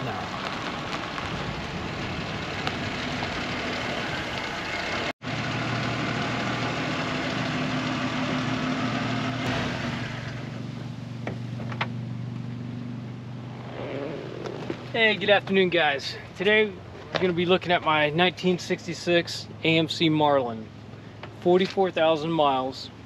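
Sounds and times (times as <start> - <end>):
car engine idling: 0.0 - 18.0
rushing noise of rolling car: 0.0 - 18.0.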